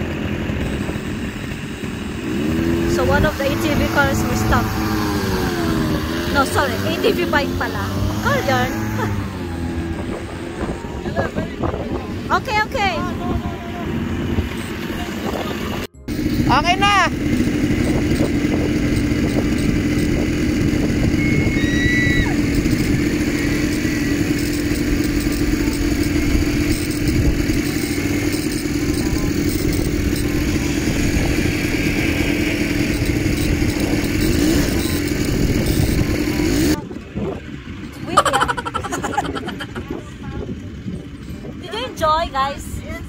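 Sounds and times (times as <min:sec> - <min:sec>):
quad bike engine running: 0:00.0 - 0:43.0.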